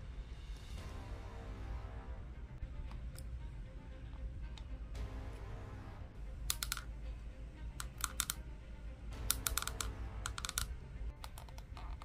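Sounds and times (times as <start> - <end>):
faint background music: 0.0 - 12.0
plastic joints clicking: 6.5 - 7.0, 7.8 - 8.4, 9.3 - 12.0.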